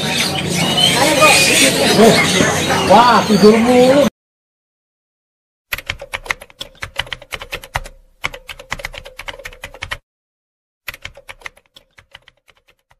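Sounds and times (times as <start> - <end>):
rapid keyboard typing clicks: 5.7 - 10.0, 10.9 - 12.9.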